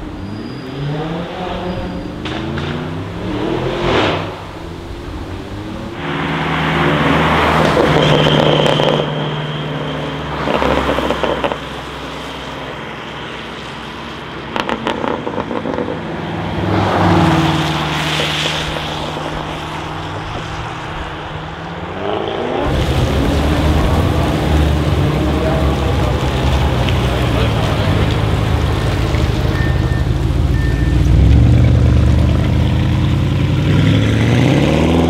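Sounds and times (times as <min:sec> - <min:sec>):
cars driving past: 0:00.0 - 0:35.0
car engine revving as it pulls away: 0:00.2 - 0:09.3, 0:21.9 - 0:35.0
exhaust crackles: 0:22.6 - 0:35.0.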